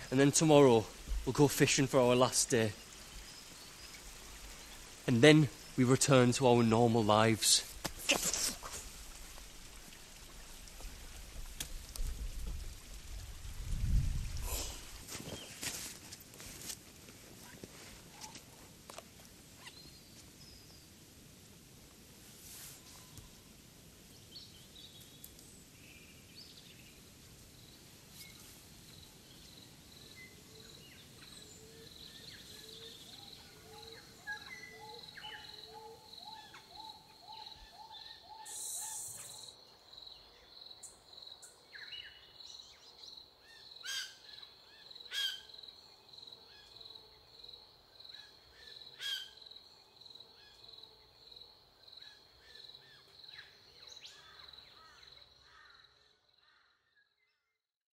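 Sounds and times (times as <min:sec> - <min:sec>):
pulsing high insect-like chirp: 0:28.9 - 0:42.2
birds calling and chirping: 0:30.1 - 0:39.6.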